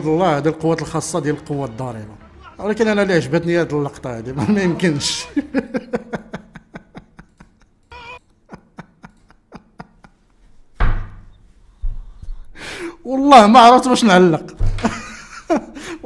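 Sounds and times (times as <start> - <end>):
man's stifled breathy laughter: 4.4 - 10.3, 14.7 - 16.0
heavy breaths: 11.6 - 13.0.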